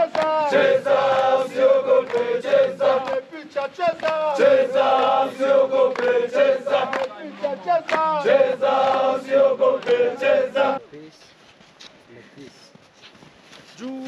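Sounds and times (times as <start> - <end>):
men chanting together: 0.0 - 10.8.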